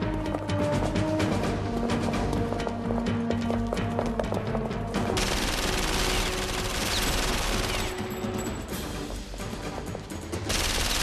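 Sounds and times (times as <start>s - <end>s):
film music score: 0.0s - 11.0s
rapid gunfire: 5.2s - 8.0s, 10.5s - 11.0s.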